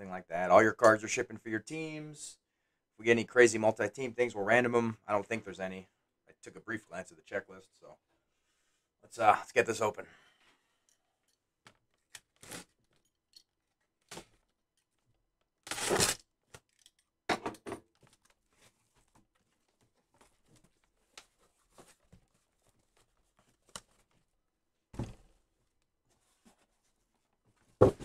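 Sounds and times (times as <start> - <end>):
packing tape tearing: 15.6 - 16.9
cardboard rustling: 18.0 - 24.3
dull cardboard thump: 24.9 - 25.2, 27.8 - 28.0.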